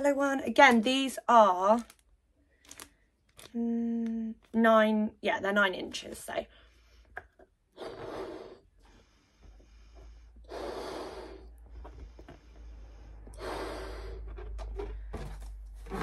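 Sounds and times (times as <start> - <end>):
breaths blown into balloon: 7.7 - 14.6.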